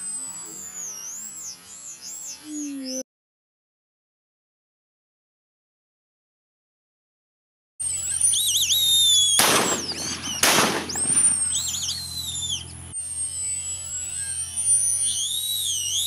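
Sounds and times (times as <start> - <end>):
ducks whistling calls: 0.0 - 3.0, 7.8 - 16.0
shotgun shots: 9.2 - 11.9.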